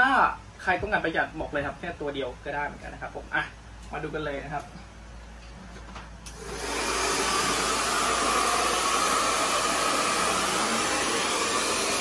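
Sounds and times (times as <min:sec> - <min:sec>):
hair dryer blowing: 0:06.3 - 0:12.0.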